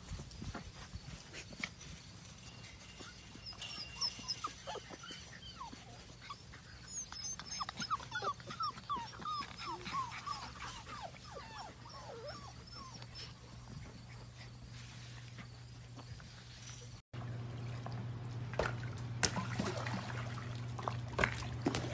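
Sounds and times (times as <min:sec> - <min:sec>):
puppies whimpering and yipping: 0:02.3 - 0:14.6.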